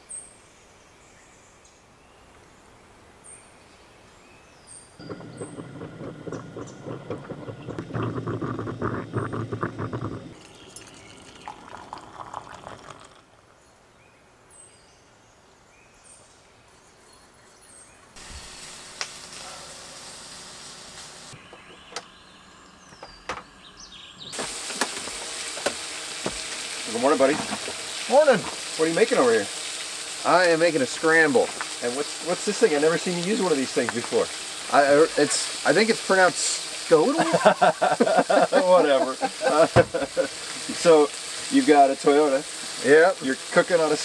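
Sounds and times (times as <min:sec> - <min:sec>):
percolator coffee pot bubbling: 0:05.0 - 0:13.3, 0:24.3 - 0:44.0
food sizzling on a griddle: 0:18.2 - 0:21.4, 0:24.3 - 0:44.0.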